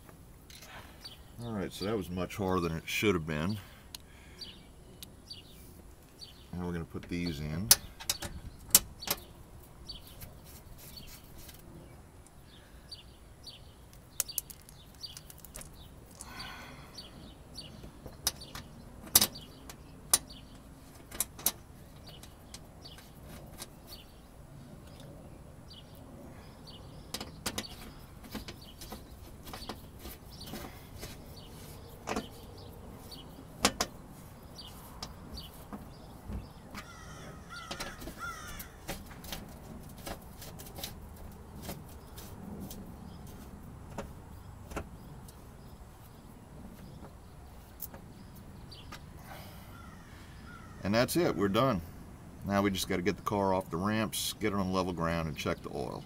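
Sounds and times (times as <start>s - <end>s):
plastic fasteners clicking: 14.2s - 16.3s.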